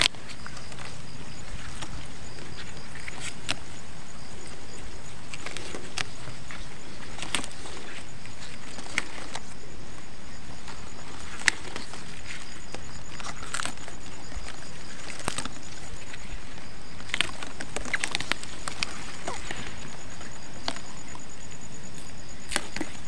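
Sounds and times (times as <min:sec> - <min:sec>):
onion leaves rustling and snapping: 0:05.3 - 0:09.5, 0:13.1 - 0:16.2, 0:17.0 - 0:21.2, 0:21.9 - 0:23.0.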